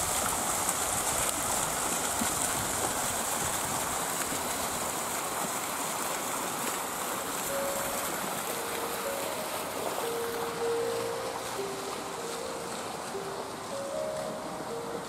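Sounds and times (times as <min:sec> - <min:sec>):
steady rushing noise: 0:00.0 - 0:15.0
soft held musical notes: 0:07.4 - 0:15.0.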